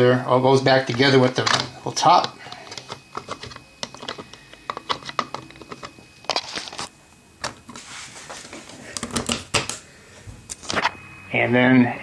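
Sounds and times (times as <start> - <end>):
soft scraping rub: 7.7 - 8.7.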